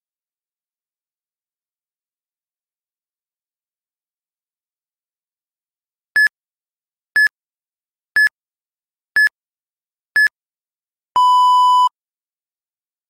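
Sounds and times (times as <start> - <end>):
short high beeps: 11.2 - 11.9.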